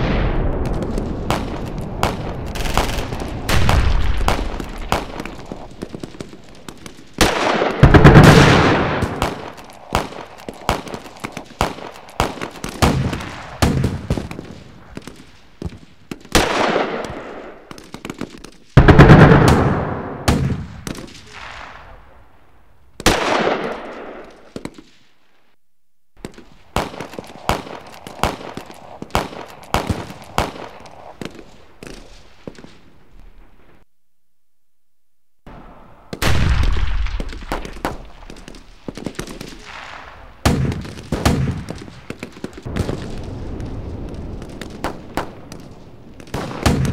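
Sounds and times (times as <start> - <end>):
big blasts: 0.0 - 15.0, 35.5 - 46.9
rapid gunfire: 0.7 - 14.4, 26.2 - 31.4, 36.2 - 43.0.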